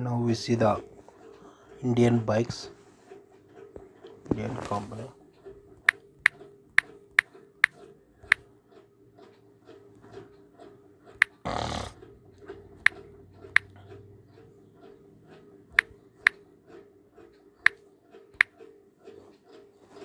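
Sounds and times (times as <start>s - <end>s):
sharp clicks: 11.1s - 14.0s, 17.6s - 18.6s.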